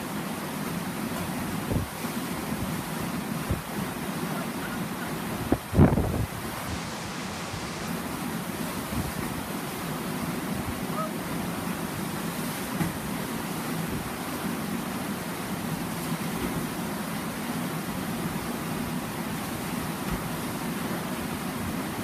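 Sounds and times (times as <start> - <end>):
churning white water roar: 0.0 - 22.0.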